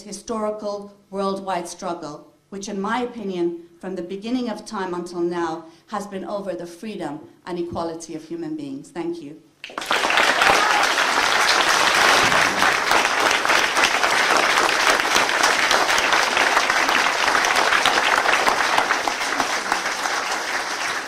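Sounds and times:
audience applauding: 9.6s - 21.0s.

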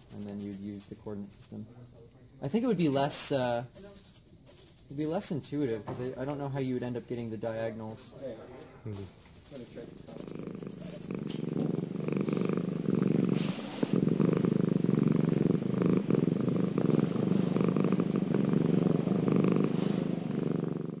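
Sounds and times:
cat purring: 6.1s - 21.0s.

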